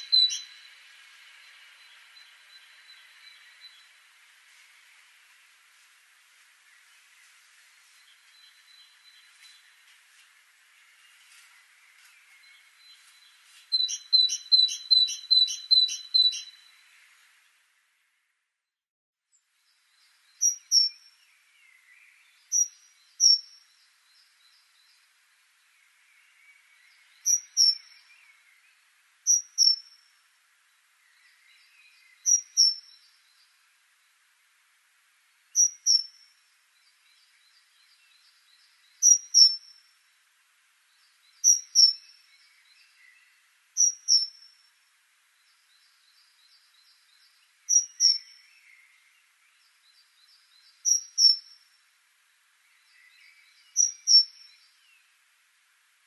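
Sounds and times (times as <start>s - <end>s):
faint chirping: 0.0s - 0.8s, 41.0s - 44.7s, 45.4s - 51.7s, 52.7s - 55.1s.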